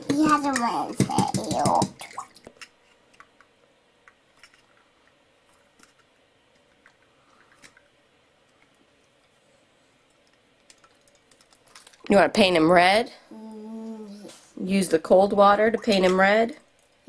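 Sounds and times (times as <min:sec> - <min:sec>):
faint clicks and knocks in water: 0:00.0 - 0:08.0.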